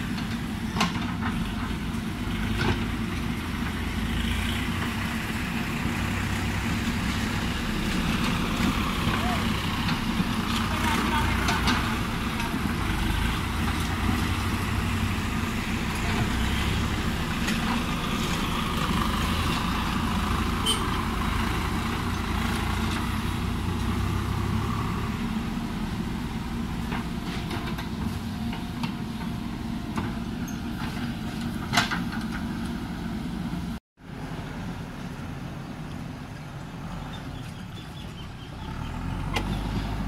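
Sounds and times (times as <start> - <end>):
diesel engine running: 0.0 - 40.0.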